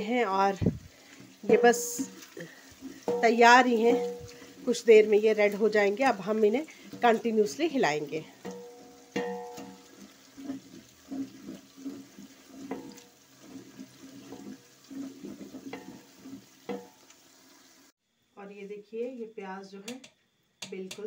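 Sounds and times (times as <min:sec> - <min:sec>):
onions sizzling in hot oil: 0:00.0 - 0:18.0
spoon knocking and scraping pot: 0:01.1 - 0:17.1
metal pot ringing: 0:02.9 - 0:04.6, 0:08.3 - 0:10.0.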